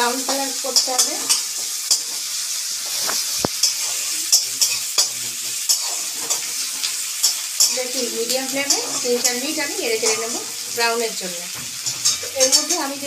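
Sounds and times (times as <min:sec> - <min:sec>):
spatula scraping pan: 0:00.0 - 0:10.9, 0:11.6 - 0:13.0
onions sizzling in oil: 0:00.0 - 0:13.0.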